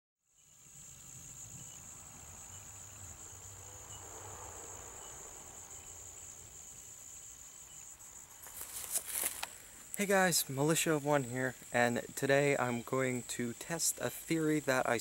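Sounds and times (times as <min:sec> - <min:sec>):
insects droning: 0:00.2 - 0:15.0.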